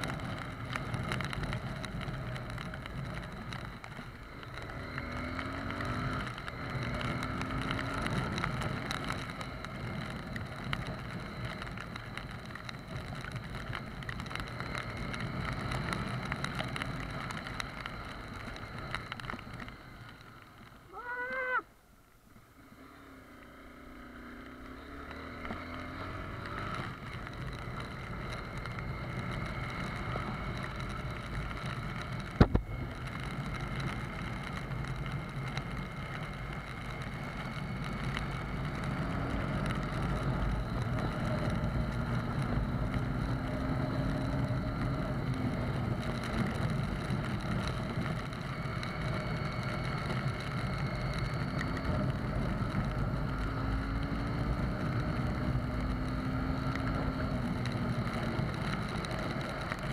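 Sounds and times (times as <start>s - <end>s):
motorcycle engine riding: 0.0s - 59.9s
tyres on wet road: 0.0s - 59.9s
wind noise: 28.4s - 59.9s.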